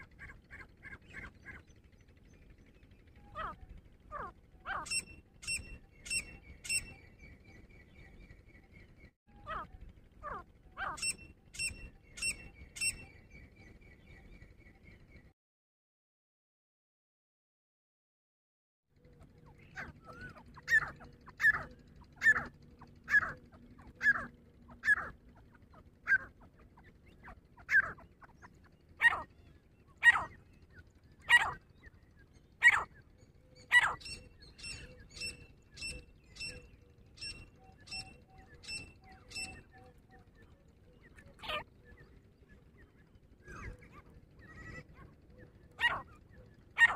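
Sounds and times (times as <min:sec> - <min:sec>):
francolin calling: 0:03.2 - 0:08.1, 0:09.4 - 0:14.2, 0:19.6 - 0:46.9.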